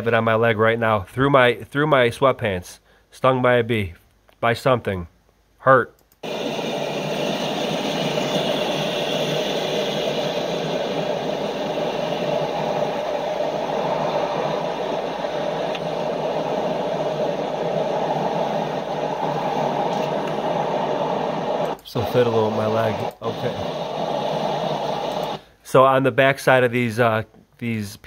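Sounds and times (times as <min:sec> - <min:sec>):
river rushing through speakers: 0:06.2 - 0:25.1.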